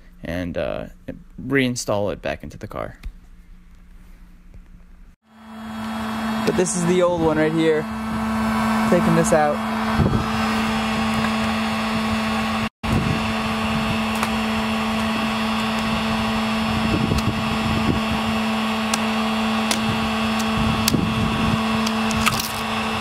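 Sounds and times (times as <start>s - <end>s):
heat gun fan humming: 5.3s - 23.0s.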